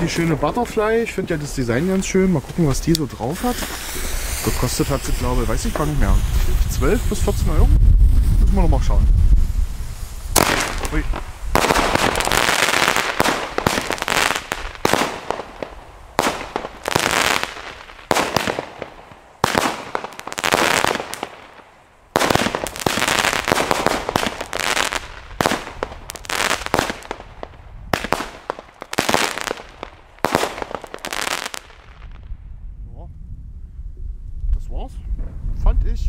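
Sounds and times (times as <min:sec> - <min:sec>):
firework hiss: 0:00.0 - 0:32.1
firework launch thumps and bursts: 0:02.4 - 0:08.4, 0:09.3 - 0:32.2.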